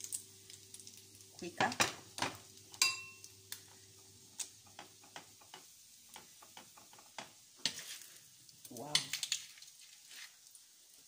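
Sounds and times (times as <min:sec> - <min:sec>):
spoon tapping and scraping plate: 0:02.2 - 0:03.2
metal spoon clinking on crockery: 0:02.8 - 0:03.3.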